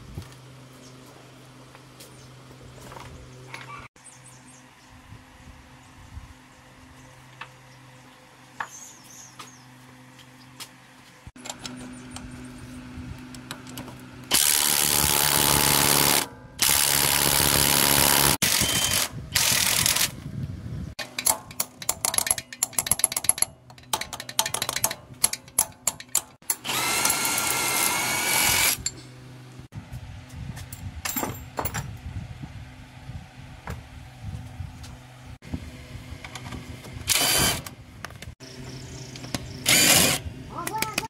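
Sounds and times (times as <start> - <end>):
power drill running: 14.3 - 20.1, 26.5 - 28.8, 37.1 - 37.7, 39.6 - 40.2.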